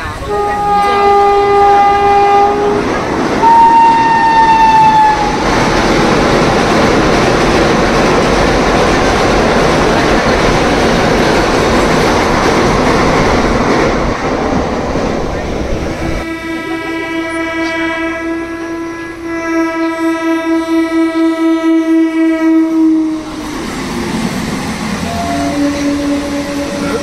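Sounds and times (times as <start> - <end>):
train wheels rumbling on rails: 0.0 - 27.0
train horn blasts: 0.2 - 5.4, 16.2 - 23.6, 25.0 - 27.0.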